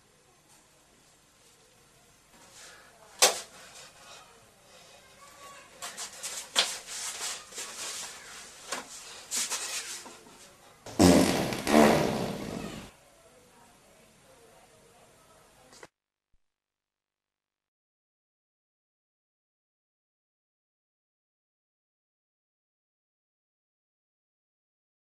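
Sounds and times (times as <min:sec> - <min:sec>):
rustling and scraping: 0:05.4 - 0:10.6
man farting: 0:10.9 - 0:12.9.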